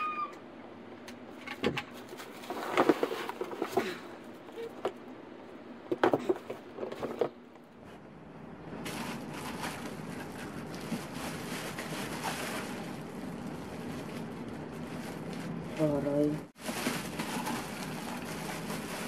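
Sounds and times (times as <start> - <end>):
plastic wrapping crackling: 8.8 - 16.0, 16.6 - 19.0.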